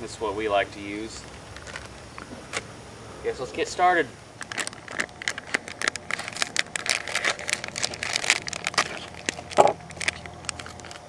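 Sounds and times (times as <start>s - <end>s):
packaging crinkling: 1.2s - 2.7s, 4.4s - 11.0s.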